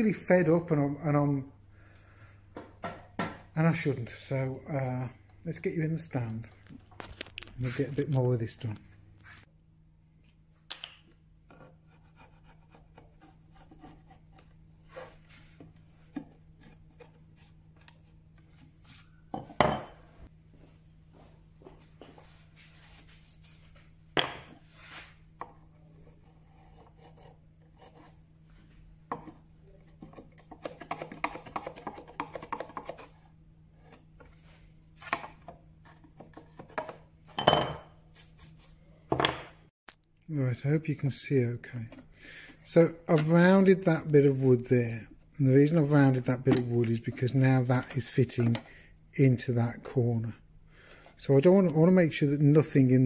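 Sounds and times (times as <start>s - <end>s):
chisel scraping wood: 26.1s - 28.2s.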